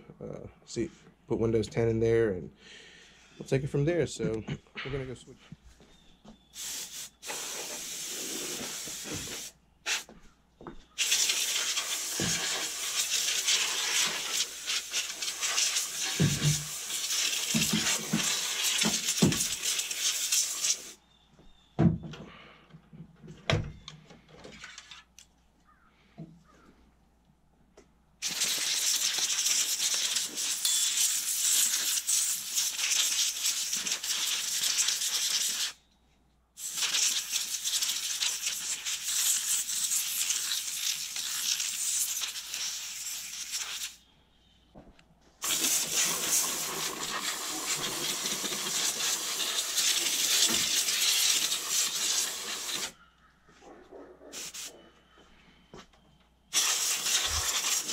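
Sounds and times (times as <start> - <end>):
compressed air hissing: 6.5 - 10.2, 10.9 - 21.0, 28.2 - 35.8, 36.6 - 44.0, 45.4 - 53.0, 54.3 - 54.9, 56.5 - 57.9.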